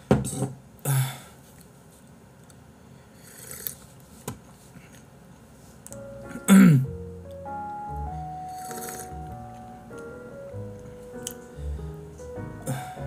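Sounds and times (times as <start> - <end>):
background music: 6.0 - 13.0.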